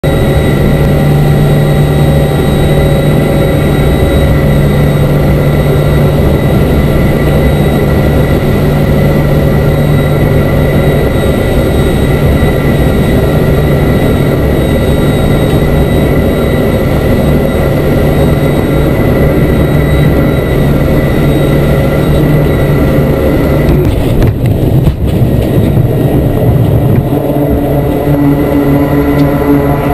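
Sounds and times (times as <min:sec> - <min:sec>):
aircraft engines droning with whine: 0:00.0 - 0:29.9.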